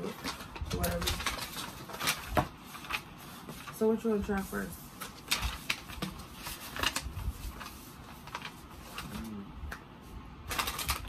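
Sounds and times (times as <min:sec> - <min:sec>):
plastic packaging crinkling: 0:00.0 - 0:03.9, 0:10.4 - 0:11.0.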